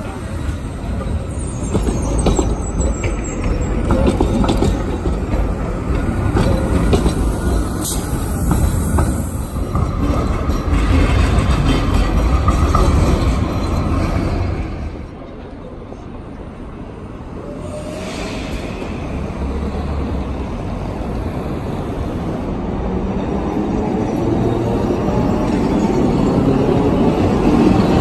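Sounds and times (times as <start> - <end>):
tram running gear rumble: 0.0 - 17.9
wheels clattering over rail joints: 1.0 - 15.1.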